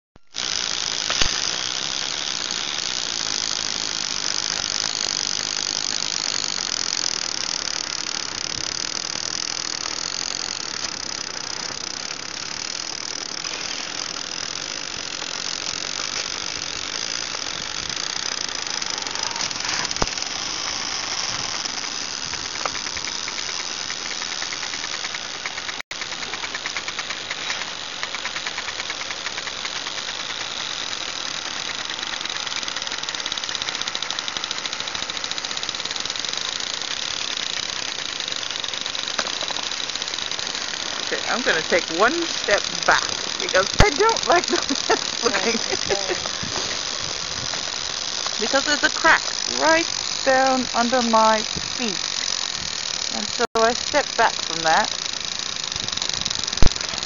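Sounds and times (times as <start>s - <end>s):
sharp ice cracks: 1.0s - 1.6s
ice floes grinding and scraping: 18.8s - 21.6s.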